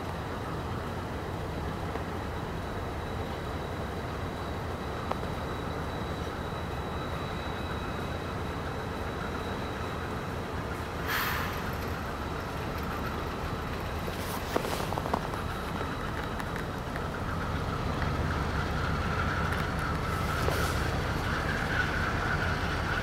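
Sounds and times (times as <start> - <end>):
distant diesel locomotive rumble: 0.0 - 23.0
brief hiss: 11.0 - 12.0.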